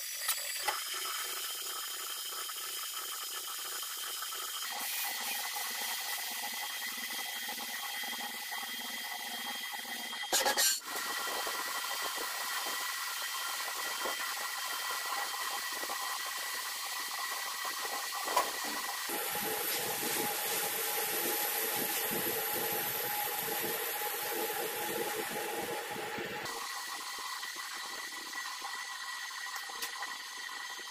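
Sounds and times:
lathe machining hiss: 0:04.6 - 0:30.9.

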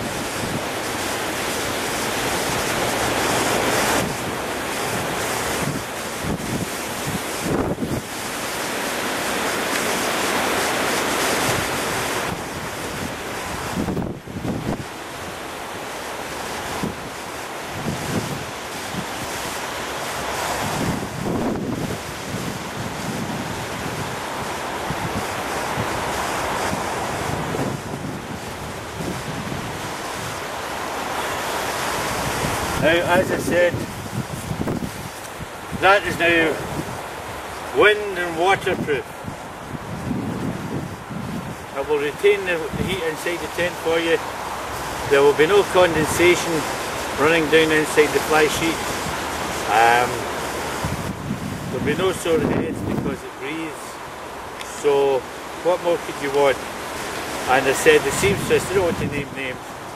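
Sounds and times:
wind blowing across microphone: 0:00.0 - 0:59.9.

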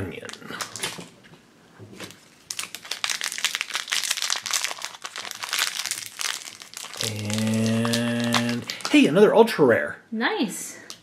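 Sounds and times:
foil bag crinkling: 0:02.0 - 0:09.2.

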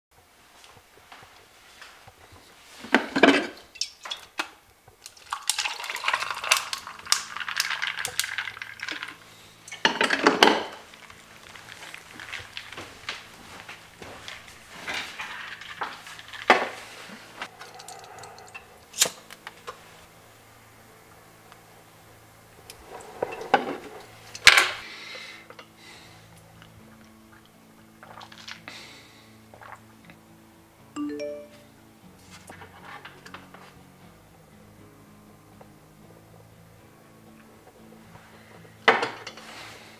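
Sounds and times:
small clicks and rustles: 0:00.6 - 0:18.7
coffee pouring into cup: 0:05.1 - 0:13.6.

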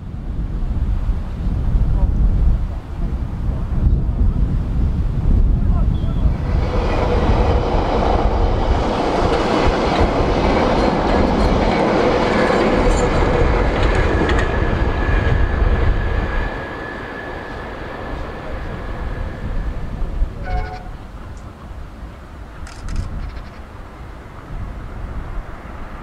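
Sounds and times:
train whine and rumble: 0:00.0 - 0:26.0
train wheels clicking over rail joints: 0:09.0 - 0:14.8.

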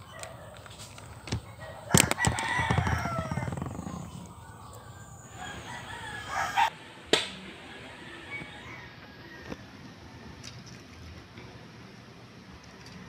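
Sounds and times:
rooster crowing: 0:01.5 - 0:06.8, 0:07.6 - 0:10.5.

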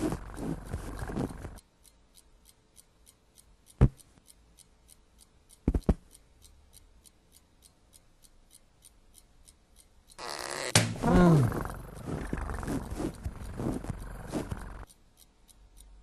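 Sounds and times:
clock ticking: 0:00.0 - 0:16.0
sharp knocks: 0:10.7 - 0:11.1
cartoon cat grumbling: 0:11.0 - 0:13.0.

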